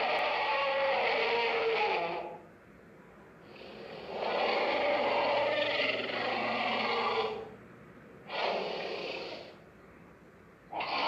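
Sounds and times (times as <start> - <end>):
dinosaur roar: 0.0 - 2.4, 3.6 - 7.5, 8.3 - 9.6, 10.7 - 11.0.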